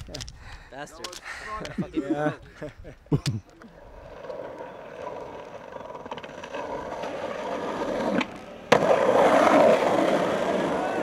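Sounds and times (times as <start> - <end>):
skateboard wheels rolling: 3.6 - 11.0
skateboard scraping grind: 3.7 - 11.0.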